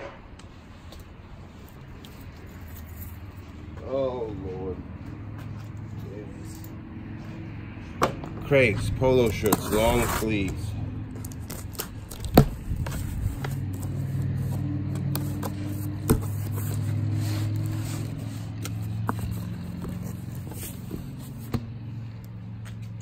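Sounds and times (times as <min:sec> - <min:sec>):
low engine-like hum: 0:00.1 - 0:23.0
knife slicing packing tape: 0:11.2 - 0:20.8.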